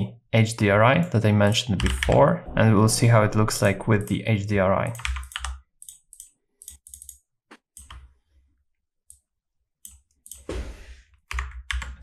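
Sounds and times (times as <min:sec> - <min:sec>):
short rush of noise: 0:02.1 - 0:04.5
keyboard and mouse clicks: 0:05.0 - 0:08.1.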